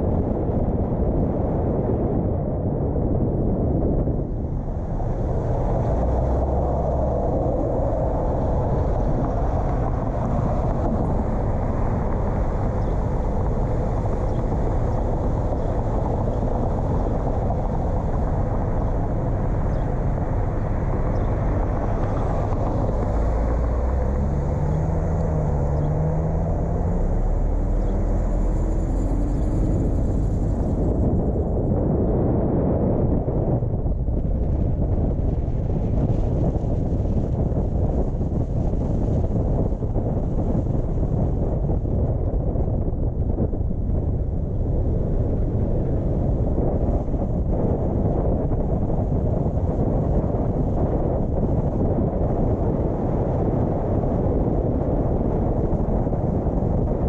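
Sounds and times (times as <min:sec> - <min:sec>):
car road and engine noise: 0:00.0 - 0:57.0
hum rising in pitch: 0:03.7 - 0:35.2.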